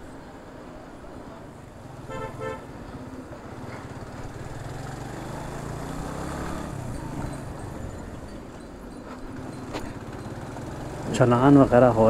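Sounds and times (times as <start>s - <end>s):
motorcycle engine accelerating: 3.5s - 8.4s, 9.4s - 11.8s.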